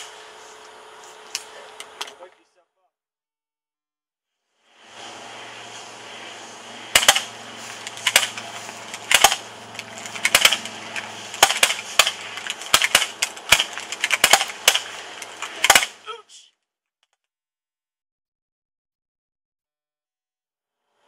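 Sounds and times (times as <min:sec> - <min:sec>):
low hum: 0:04.5 - 0:16.1
sharp clicks: 0:06.9 - 0:16.0.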